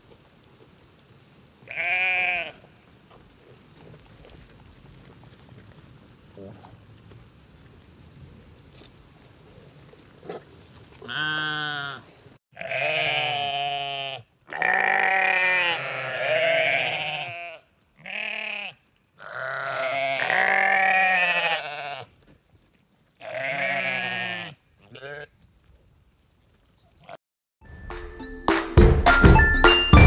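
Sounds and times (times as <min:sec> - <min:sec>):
sheep bleating: 0:01.7 - 0:02.7, 0:11.0 - 0:22.1, 0:23.2 - 0:25.3.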